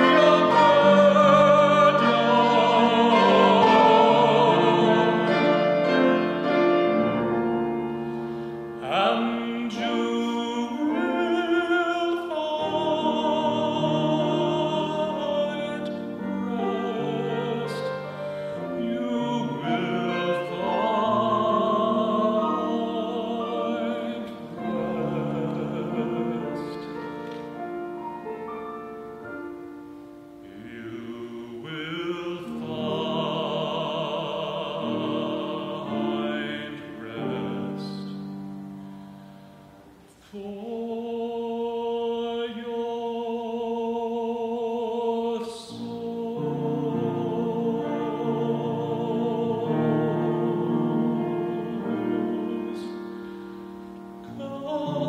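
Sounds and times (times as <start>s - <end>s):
person singing operatically: 0.0s - 6.3s, 8.8s - 27.1s, 54.3s - 55.0s
piano: 0.0s - 55.0s.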